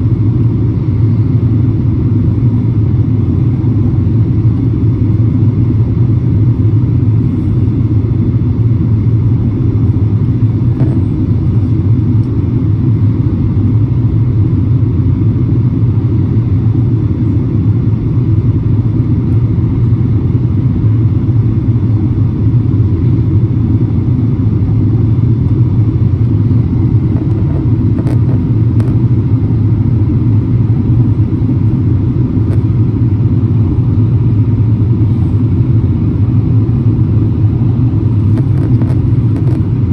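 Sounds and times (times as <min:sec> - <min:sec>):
jet engines rumbling in cabin: 0:00.0 - 0:39.9.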